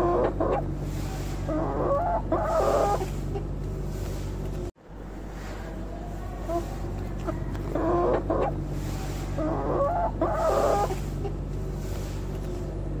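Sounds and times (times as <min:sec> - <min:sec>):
steady low hum: 0:00.0 - 0:13.0
chicken clucking: 0:01.4 - 0:03.5, 0:06.0 - 0:11.4.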